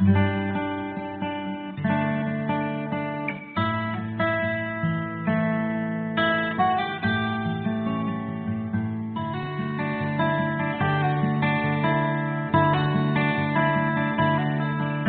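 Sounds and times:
acoustic guitar chords: 0:00.0 - 0:15.0.

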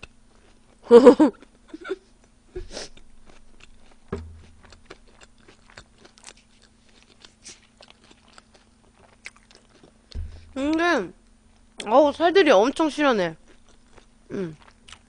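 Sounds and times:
close chewing with wet clicks: 0:02.2 - 0:10.8, 0:13.4 - 0:15.0
light knock: 0:04.1 - 0:04.5, 0:10.1 - 0:10.6.

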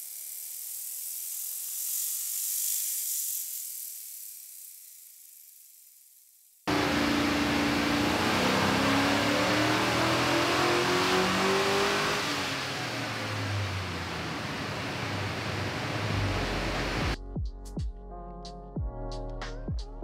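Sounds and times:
dyno rollers winding down: 0:06.7 - 0:17.2
engine revving at full throttle: 0:06.7 - 0:17.2.

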